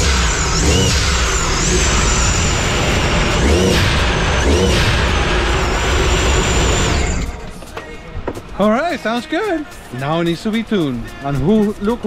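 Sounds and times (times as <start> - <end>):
supercharger whine: 0.0 - 7.4.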